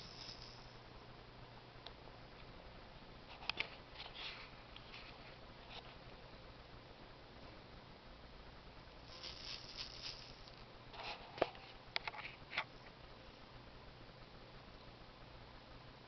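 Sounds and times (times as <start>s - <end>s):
baby rattle rattling: 0.0s - 0.7s, 9.1s - 10.6s.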